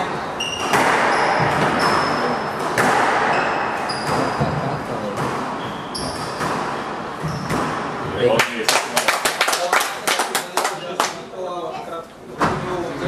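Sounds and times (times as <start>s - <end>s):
shoes squeaking on wooden floor: 0.4s - 2.5s, 3.3s - 4.8s, 5.6s - 6.4s, 7.1s - 7.6s
squash ball hitting rackets and walls: 0.4s - 8.4s.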